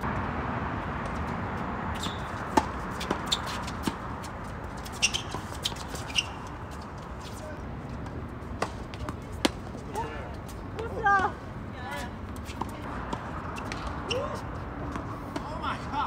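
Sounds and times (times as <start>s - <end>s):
tennis ball bouncing: 1.0s - 7.4s, 8.0s - 9.9s, 12.2s - 14.2s
tennis racket strokes: 1.0s - 10.9s.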